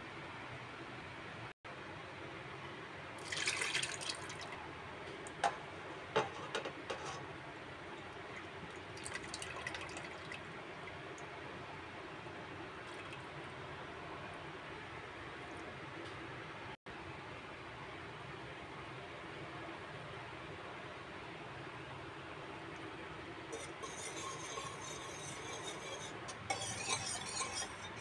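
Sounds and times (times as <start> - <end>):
milk pouring into metal pot: 3.2 - 4.5, 8.3 - 11.1.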